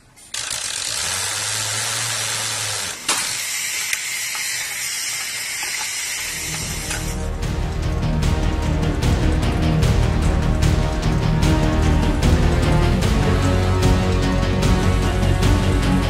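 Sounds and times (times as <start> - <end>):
sharp metallic clicks: 0.1 - 7.5
music: 6.2 - 16.0.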